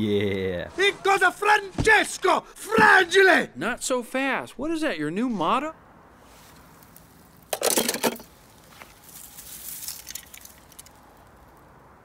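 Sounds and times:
toy car clinking and rustling: 7.5 - 8.5, 9.1 - 11.2.

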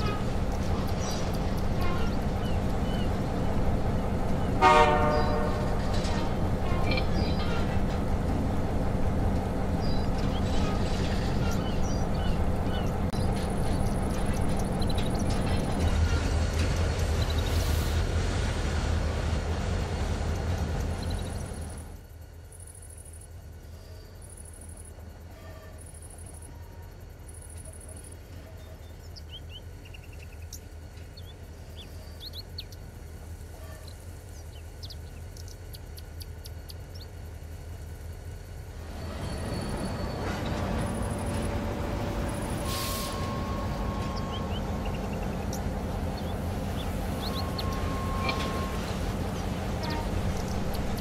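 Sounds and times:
birds chirping: 0.0 - 17.6, 20.3 - 21.8, 27.3 - 37.9, 38.5 - 51.0
high pulsing chirp: 42.3 - 51.0.

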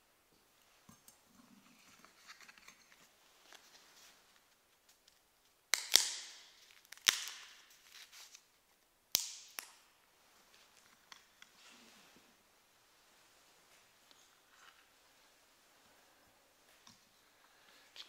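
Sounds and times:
soft handling rustle: 0.4 - 5.6, 7.6 - 8.9, 10.2 - 18.0.

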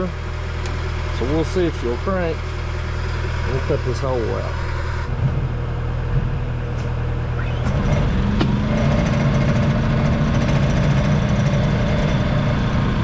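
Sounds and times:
engine idling: 0.0 - 13.0
portable generator running: 0.0 - 13.0.

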